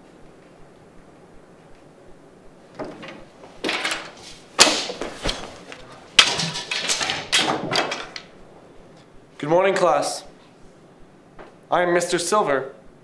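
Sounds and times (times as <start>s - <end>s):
rustling and scraping: 2.8s - 8.3s
sharp bangs: 4.6s - 5.5s.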